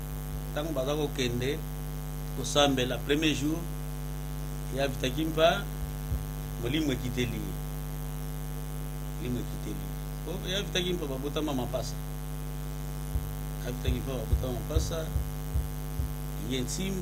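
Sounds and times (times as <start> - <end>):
electrical mains hum: 0.0 - 17.0
man speaking: 0.6 - 1.6, 2.4 - 3.7, 4.7 - 5.7, 6.6 - 7.6, 9.2 - 12.0, 13.6 - 15.2, 16.4 - 17.0.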